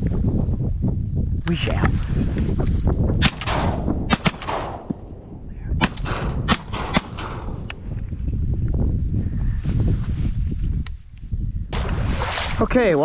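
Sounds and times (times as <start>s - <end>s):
shotgun blasts: 3.2s - 5.0s, 5.8s - 7.7s.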